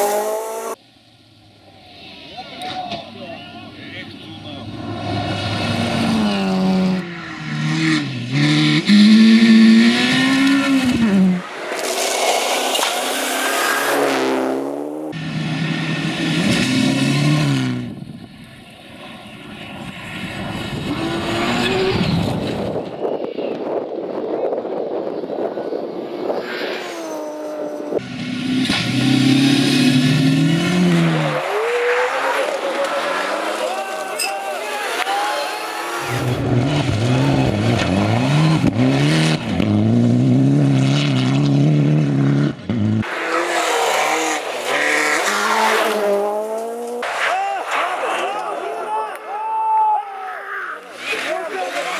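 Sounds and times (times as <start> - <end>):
rally car engine revving: 0.0 - 0.8, 4.6 - 22.9, 25.9 - 34.2, 34.8 - 48.2, 50.8 - 51.9
tyres on gravel: 43.1 - 49.2.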